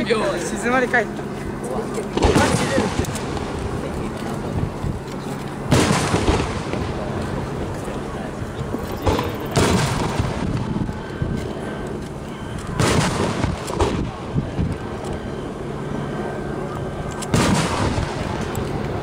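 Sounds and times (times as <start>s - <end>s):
firework booms with rolling echo: 2.2s - 3.6s, 5.7s - 7.2s, 9.0s - 10.8s, 12.8s - 14.7s, 17.3s - 18.5s.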